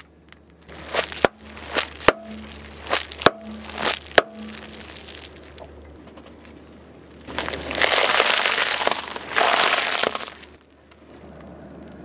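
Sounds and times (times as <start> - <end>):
low steady hum: 0.0 - 12.0
plastic crinkling: 0.6 - 5.8, 7.2 - 10.7.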